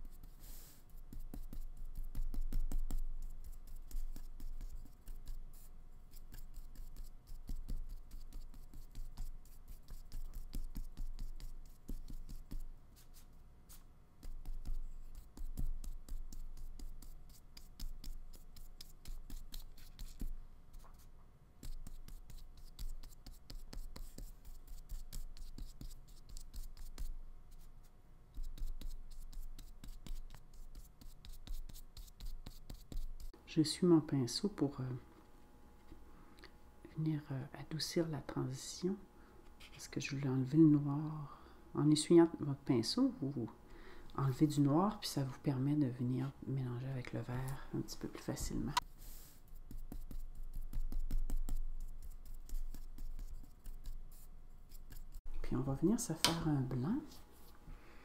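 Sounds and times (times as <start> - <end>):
paintbrush scratching on paper: 0.0 - 33.4, 47.2 - 55.9.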